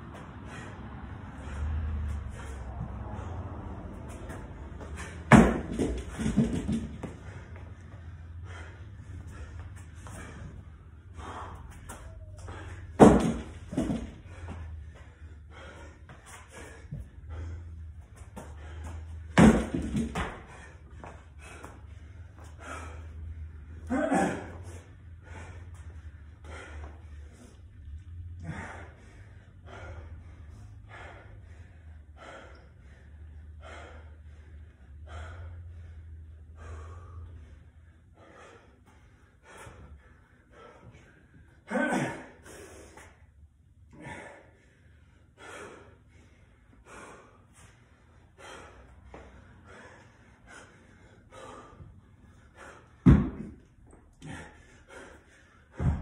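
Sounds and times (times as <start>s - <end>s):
man panting heavily: 0.0s - 56.0s
dumbbell thump: 5.0s - 7.1s, 13.0s - 14.2s, 19.4s - 20.4s, 53.0s - 53.6s, 55.8s - 56.0s.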